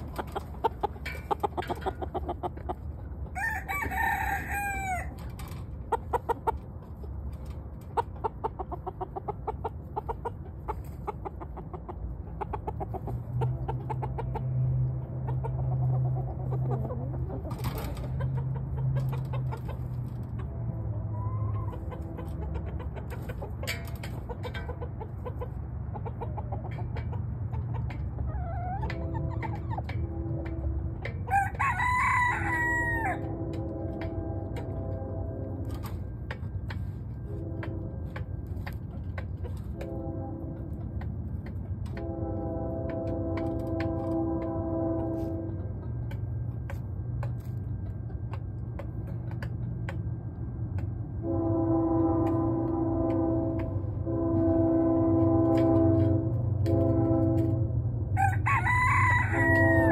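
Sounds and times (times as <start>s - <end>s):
chickens clucking: 0.0s - 57.6s, 58.2s - 59.9s
rooster crowing: 3.3s - 5.2s, 31.2s - 33.3s, 58.2s - 59.9s.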